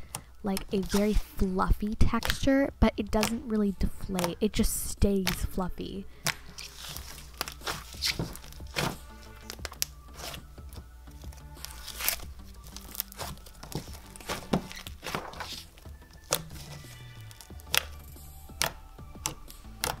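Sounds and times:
soft background music: 0.0 - 20.0
slime clicks and pops: 17.6 - 20.0.

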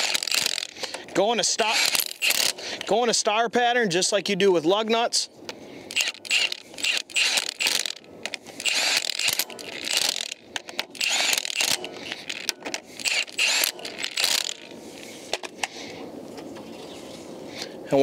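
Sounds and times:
hand ratchet clicking: 0.0 - 1.0, 1.7 - 2.6, 5.9 - 14.7.

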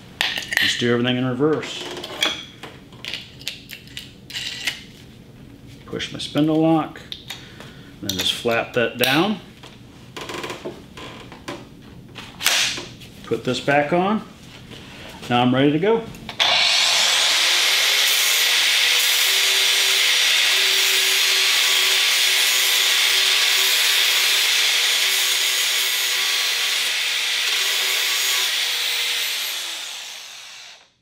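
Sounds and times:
angle grinder grinding metal: 16.4 - 30.9.

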